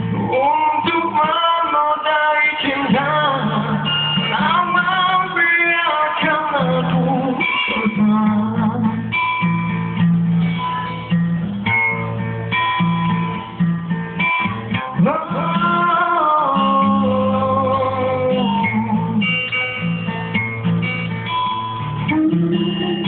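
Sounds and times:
man singing: 0.0s - 9.4s, 14.7s - 19.8s
acoustic guitar strumming: 0.0s - 23.0s.

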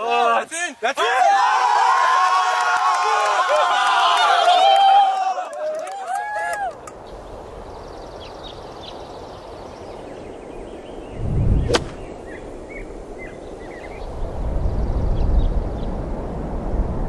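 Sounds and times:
steady outdoor hiss: 0.0s - 17.0s
small birds chirping: 7.0s - 16.3s
golf club swing whoosh: 11.2s - 12.2s
golf club striking ball: 11.6s - 12.1s.

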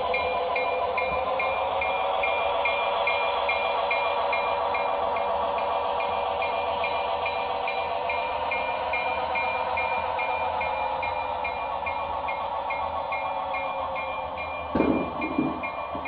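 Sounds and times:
model train cars rolling on track: 0.0s - 16.0s
bell ringing: 13.6s - 16.0s.

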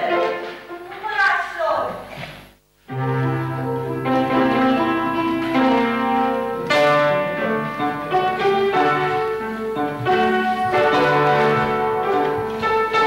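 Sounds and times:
instrumental music with held chords: 2.9s - 13.0s.

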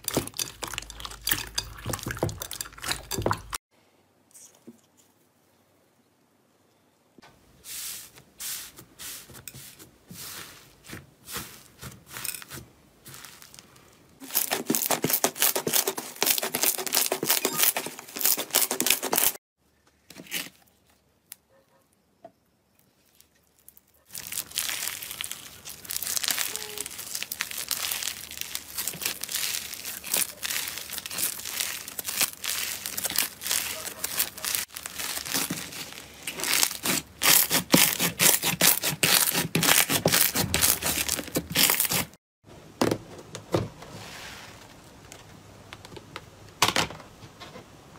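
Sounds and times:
slime squishing: 23.1s - 42.2s
slime crackling and popping: 23.4s - 42.0s.

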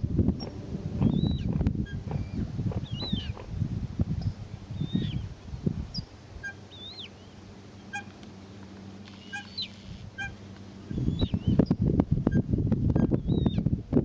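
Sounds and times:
low rumbling noise: 0.0s - 14.0s
high squeaky bird calls: 1.0s - 3.4s, 4.8s - 5.3s, 6.0s - 8.1s, 9.1s - 11.8s
birds short sharp pips: 9.0s - 11.7s.

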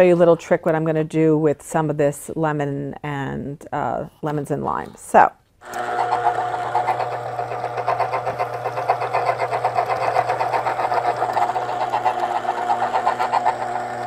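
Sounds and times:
citrus juicer motor humming: 5.6s - 14.0s.

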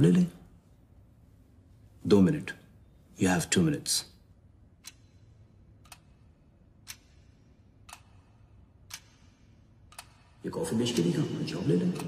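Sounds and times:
clock ticking: 4.2s - 12.0s.

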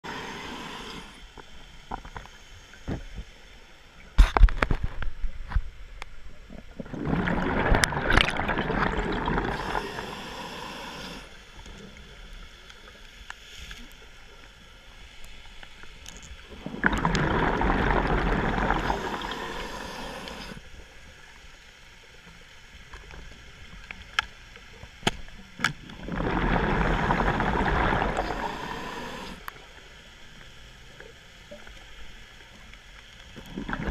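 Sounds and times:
scuba exhaust bubbles: 6.5s - 11.3s, 16.5s - 20.6s, 25.8s - 29.5s, 33.4s - 33.9s
regulator breathing: 18.8s - 20.6s.

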